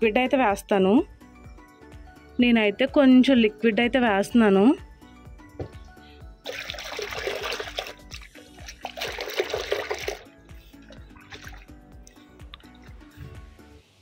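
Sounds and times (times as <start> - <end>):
water splashing into clay pot: 6.4 - 11.8.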